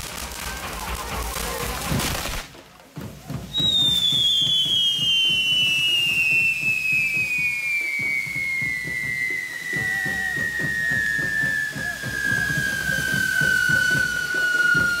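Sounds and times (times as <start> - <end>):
drums beating: 0.0 - 15.0
whistling firework shrieking: 3.5 - 15.0.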